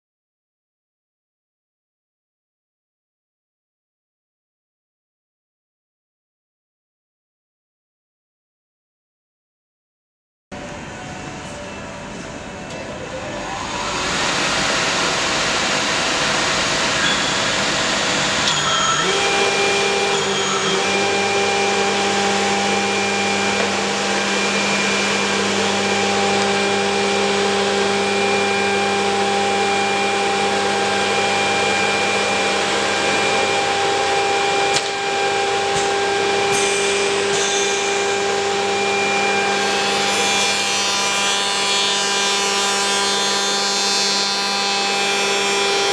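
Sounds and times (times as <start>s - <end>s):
milling machine motors humming: 10.6s - 45.9s.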